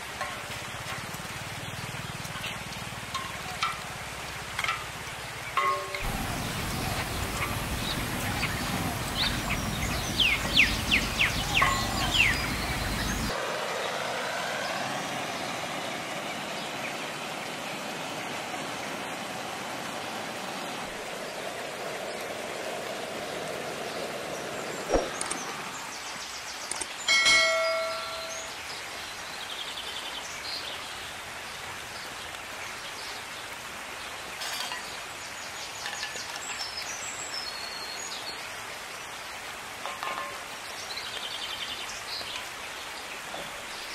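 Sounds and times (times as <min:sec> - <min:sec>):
birds chirping: 0:01.0 - 0:18.4, 0:20.6 - 0:29.4
metal utensil clanging: 0:05.6 - 0:07.8, 0:11.4 - 0:13.0, 0:39.8 - 0:40.5.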